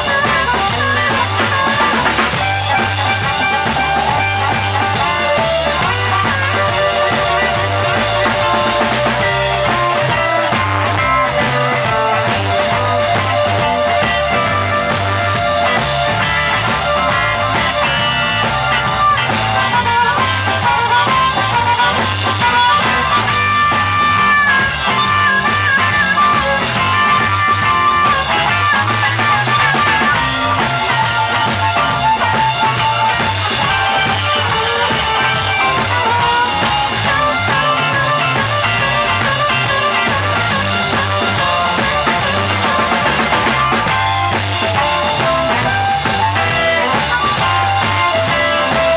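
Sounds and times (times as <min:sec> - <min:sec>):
drum kit steady beat: 0:00.0 - 0:48.9
electric bass: 0:00.0 - 0:48.9
electric guitar: 0:00.0 - 0:48.9
harmonica wailing: 0:00.0 - 0:48.9.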